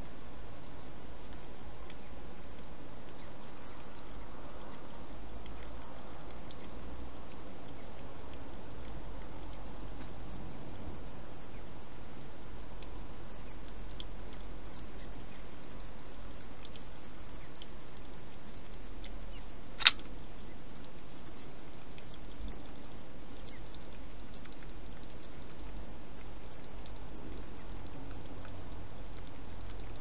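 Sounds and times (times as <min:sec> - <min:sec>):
microphone hiss: 0:00.0 - 0:30.0
faint ticks: 0:11.5 - 0:30.0
sharp click: 0:19.8 - 0:20.1.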